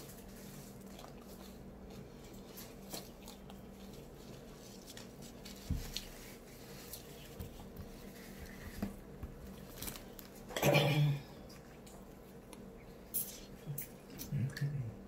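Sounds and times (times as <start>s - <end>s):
wet chewing: 0.0s - 7.8s.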